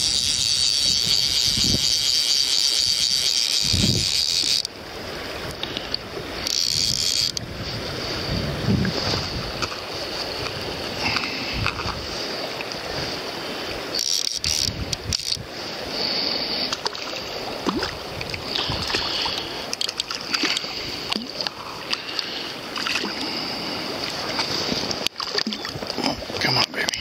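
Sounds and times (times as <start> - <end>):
wind on microphone: 0.0 - 16.8, 17.4 - 21.9
river current rushing: 0.0 - 27.0
sharp knocks and splashes: 16.7 - 22.1, 24.0 - 26.7.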